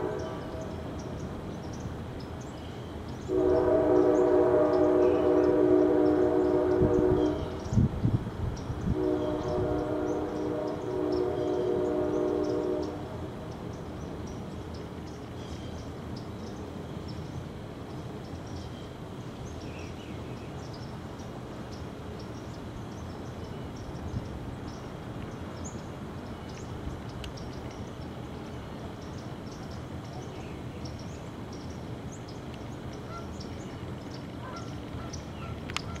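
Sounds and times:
outdoor background hiss: 0:00.0 - 0:36.0
deep honking tone: 0:03.3 - 0:07.6, 0:08.9 - 0:13.0.

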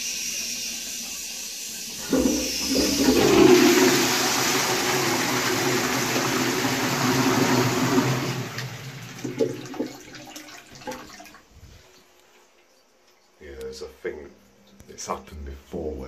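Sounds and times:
toilet flush water rushing: 0:00.0 - 0:11.4.

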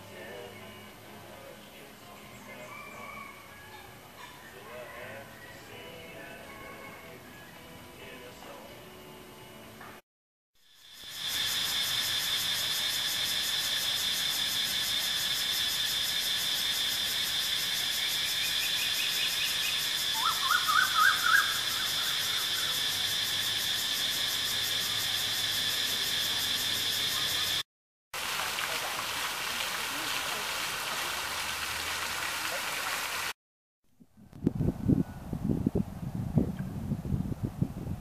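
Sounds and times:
insect chorus drone: 0:10.6 - 0:27.6
bird calling: 0:19.5 - 0:22.7.

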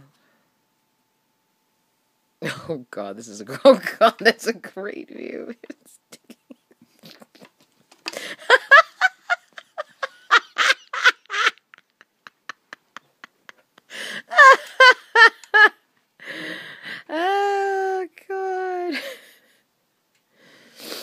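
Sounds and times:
woman laughing: 0:05.4 - 0:15.8, 0:18.5 - 0:19.6.

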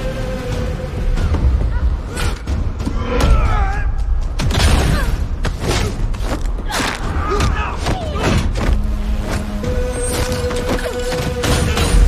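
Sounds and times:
low rumbling music: 0:00.0 - 0:12.0
fighters grunting and shouting: 0:06.6 - 0:08.6.

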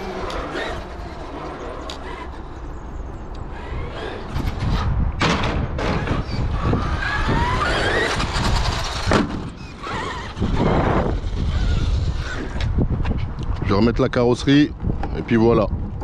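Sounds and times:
electric motor whining: 0:00.0 - 0:05.0, 0:05.8 - 0:13.0.

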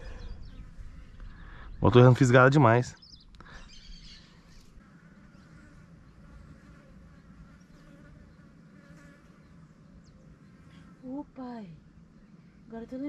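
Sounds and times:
flying insect buzzing: 0:03.9 - 0:12.0.

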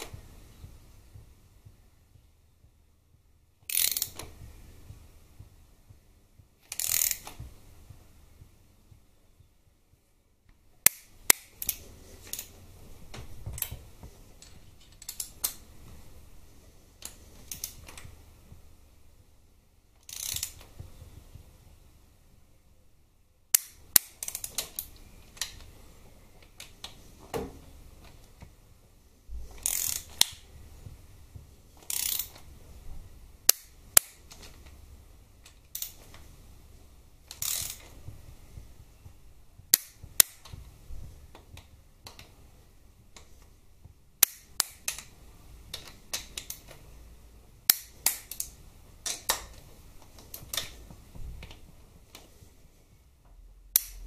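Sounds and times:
socket ratchet clicking: 0:03.6 - 0:04.3, 0:06.6 - 0:07.4, 0:10.8 - 0:12.5, 0:14.8 - 0:15.6, 0:17.0 - 0:18.0, 0:20.0 - 0:20.7, 0:23.5 - 0:25.7, 0:29.6 - 0:30.4, 0:31.8 - 0:32.5, 0:33.4 - 0:34.6, 0:35.5 - 0:36.2, 0:37.3 - 0:37.9, 0:39.7 - 0:40.6, 0:44.2 - 0:45.1, 0:45.7 - 0:46.8, 0:47.7 - 0:49.5, 0:53.7 - 0:54.0
sharp metal clicks: 0:03.6 - 0:04.4, 0:06.6 - 0:07.4, 0:10.8 - 0:12.6, 0:14.4 - 0:15.7, 0:17.0 - 0:18.1, 0:20.0 - 0:20.8, 0:23.5 - 0:25.7, 0:29.6 - 0:30.4, 0:31.8 - 0:32.5, 0:33.4 - 0:34.8, 0:35.4 - 0:36.3, 0:37.2 - 0:38.0, 0:39.7 - 0:40.6, 0:44.2 - 0:46.8, 0:47.7 - 0:50.8, 0:53.7 - 0:54.0.

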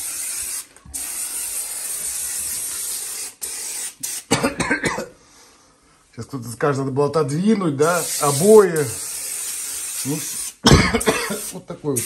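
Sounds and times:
aerosol can spraying: 0:00.0 - 0:04.3, 0:07.8 - 0:10.6, 0:11.2 - 0:12.0.

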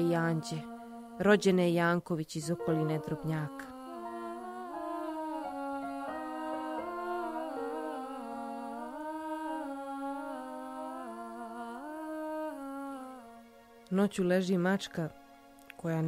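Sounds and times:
person humming a melody: 0:00.0 - 0:01.8, 0:02.4 - 0:13.4.

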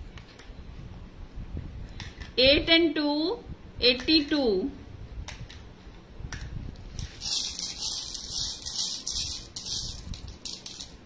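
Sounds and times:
number tokens rattling: 0:07.0 - 0:11.0.

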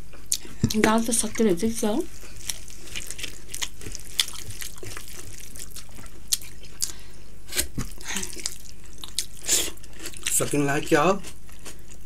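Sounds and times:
wet chewing sounds: 0:02.1 - 0:12.0
fingers squishing rice: 0:02.2 - 0:07.0.

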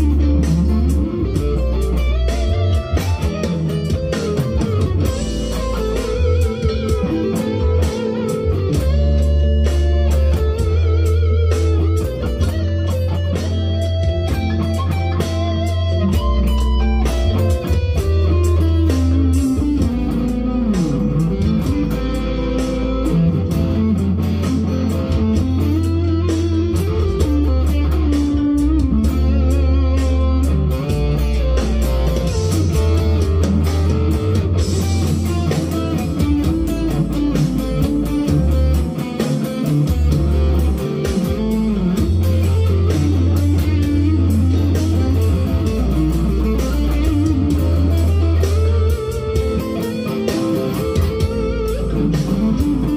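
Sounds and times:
electric guitar lead with bends: 0:00.0 - 0:52.9.

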